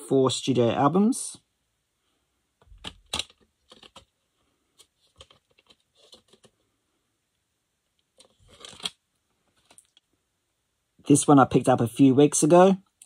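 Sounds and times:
plastic case clattering: 2.6 - 4.1
plastic case clicks and rattles: 2.6 - 4.1, 8.2 - 9.0.

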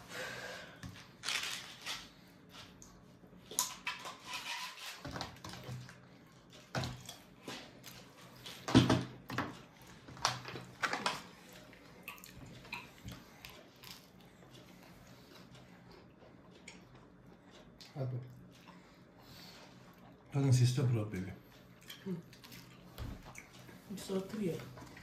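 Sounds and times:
small knocks and clatter: 7.9 - 11.3.

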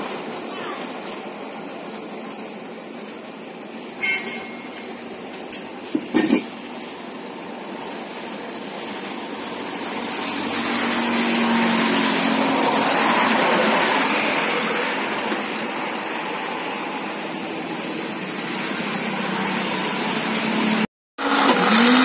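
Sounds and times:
street traffic noise: 0.0 - 22.0
short squeak: 4.0 - 4.8.

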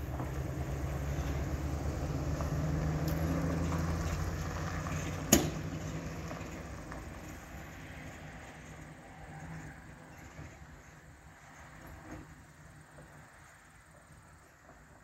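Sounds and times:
truck engine running: 0.0 - 9.1.

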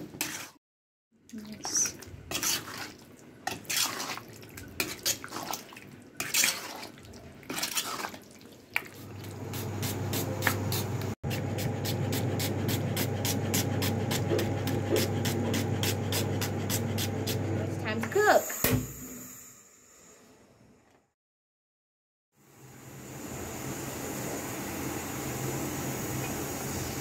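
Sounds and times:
hands mixing meat in steel bowl: 1.6 - 10.8.

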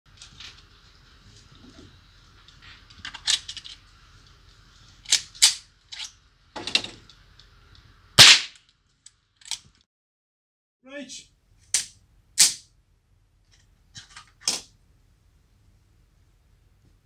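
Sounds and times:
gunshot: 8.2 - 8.6.

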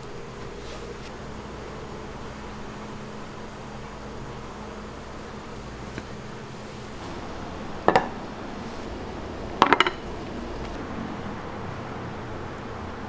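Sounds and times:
room noise: 0.0 - 13.0
ceramic plates clinking: 7.8 - 8.2, 9.6 - 10.2.

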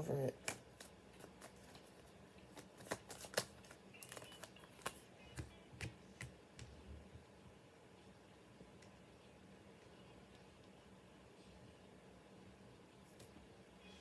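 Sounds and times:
cards snapping and tapping: 0.4 - 1.8, 2.5 - 6.7.

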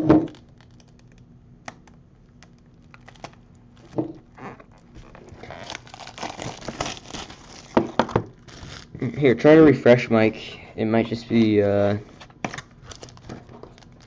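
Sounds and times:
plastic wrapping tearing and crinkling: 0.0 - 9.1, 12.2 - 14.0.

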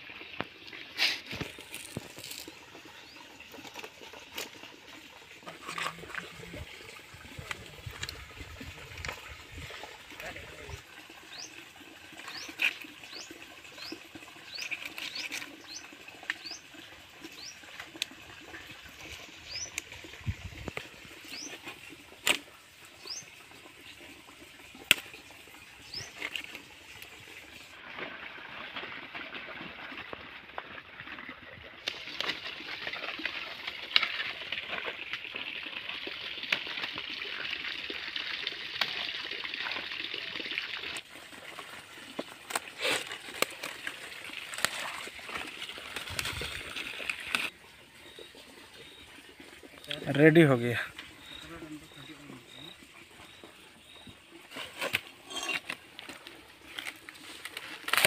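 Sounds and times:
small birds chirping: 10.2 - 11.6, 12.2 - 17.7, 18.5 - 22.3, 22.9 - 24.0, 24.9 - 27.2, 47.7 - 54.3.

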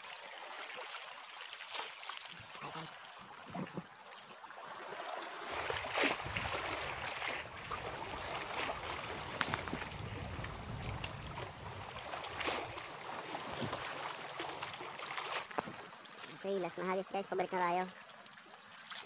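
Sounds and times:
water splashing and sloshing: 0.0 - 19.0
wind rumble on microphone: 5.6 - 14.0.

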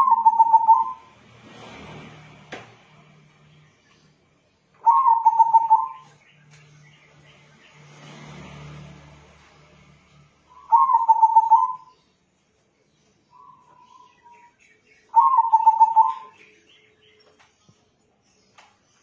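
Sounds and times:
dove cooing: 0.0 - 1.1, 4.8 - 6.1, 10.6 - 11.9, 15.1 - 16.4.

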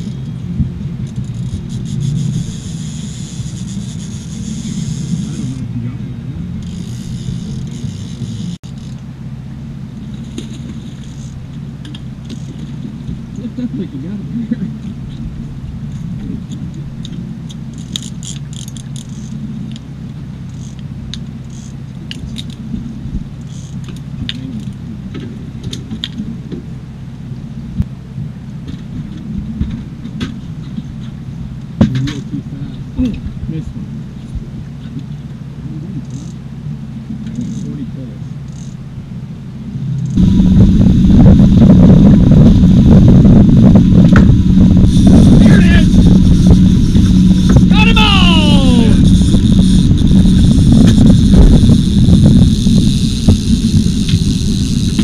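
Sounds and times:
outboard motor running: 0.0 - 55.0
steady low rumble: 0.0 - 55.0
reels being cranked: 6.6 - 9.0, 48.7 - 55.0
fishing tackle clicks and rattles: 15.9 - 19.8, 20.5 - 22.6, 36.0 - 36.4
wind on microphone: 39.8 - 55.0.

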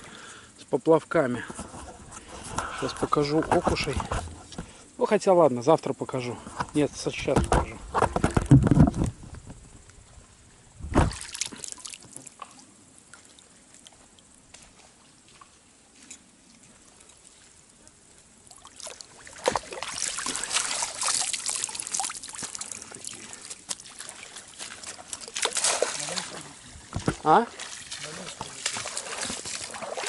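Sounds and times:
single thump: 7.2 - 9.6, 10.8 - 11.2
water splashing and trickling: 10.9 - 30.0.

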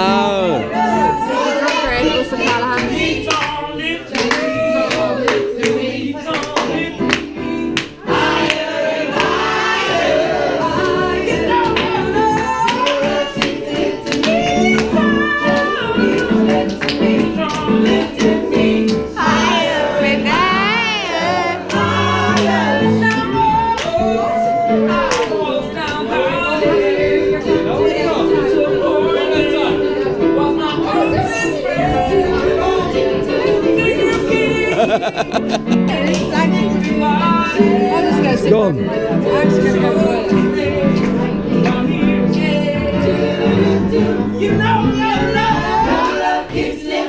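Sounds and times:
person singing: 10.7 - 47.0.

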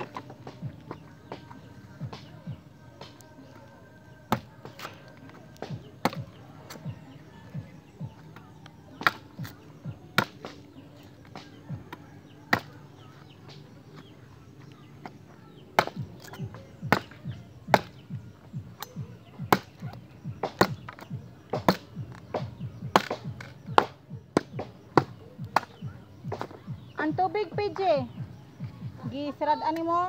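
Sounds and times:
knife chopping wood: 4.3 - 6.9, 8.9 - 11.8, 12.5 - 12.8, 15.8 - 18.1, 18.8 - 26.6.

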